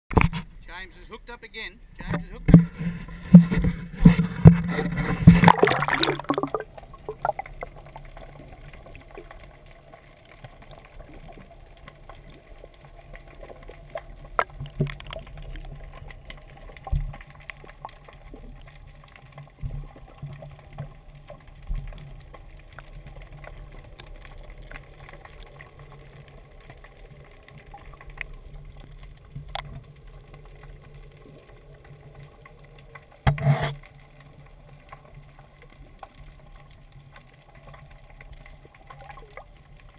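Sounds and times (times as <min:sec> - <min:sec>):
low underwater rumble: 0:01.8 - 0:24.9.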